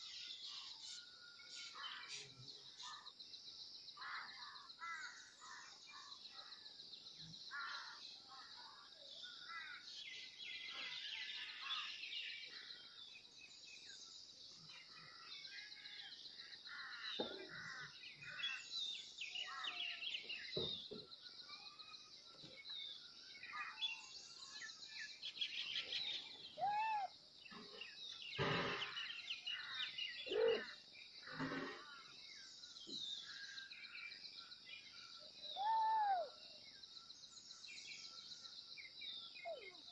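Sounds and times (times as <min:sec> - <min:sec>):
birds chirping and singing: 0:00.0 - 0:39.9
loud short bird cries: 0:26.6 - 0:27.1, 0:35.6 - 0:36.3.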